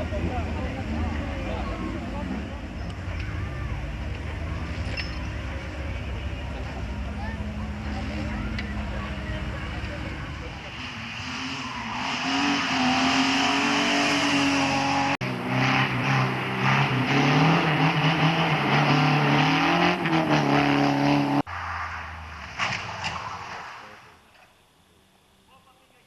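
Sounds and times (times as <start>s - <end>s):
racing car engine at high revs: 6.0s - 21.5s.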